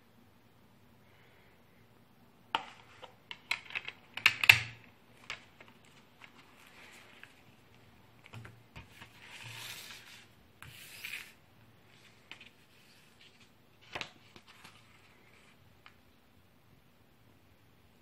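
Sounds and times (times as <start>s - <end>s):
paper rubbing and sliding: 8.8s - 13.5s.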